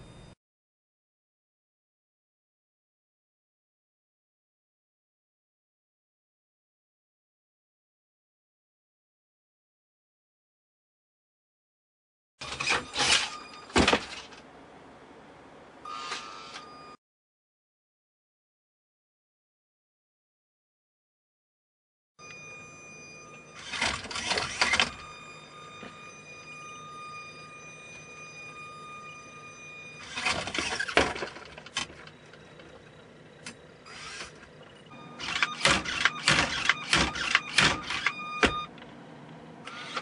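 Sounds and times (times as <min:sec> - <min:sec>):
faint high whine: 0:00.0 - 0:00.4, 0:12.4 - 0:17.0, 0:22.2 - 0:38.7.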